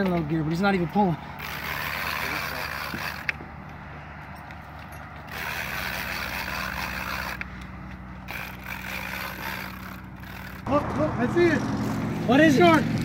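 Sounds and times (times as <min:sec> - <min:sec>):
fishing reel whirring: 0:01.4 - 0:03.4, 0:05.3 - 0:07.6, 0:08.2 - 0:10.7.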